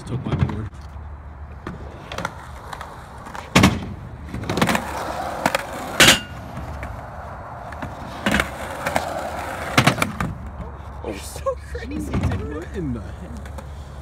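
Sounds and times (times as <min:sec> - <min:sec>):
skateboard rolling on concrete: 0:00.2 - 0:14.0
skateboard clacking: 0:01.6 - 0:10.5.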